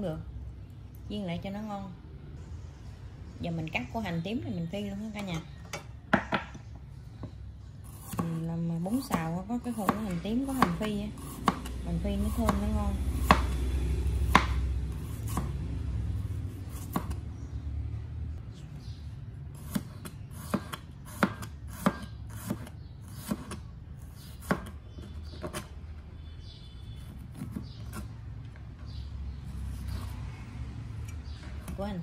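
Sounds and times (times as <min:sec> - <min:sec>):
knife chopping on plastic board: 0:09.0 - 0:13.6, 0:14.3 - 0:14.7, 0:16.7 - 0:17.2, 0:19.6 - 0:23.6, 0:24.3 - 0:25.7.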